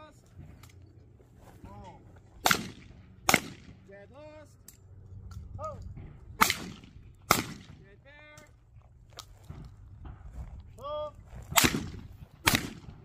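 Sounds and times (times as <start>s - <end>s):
shotgun shots: 2.4s - 3.8s, 6.4s - 7.8s, 11.5s - 13.0s.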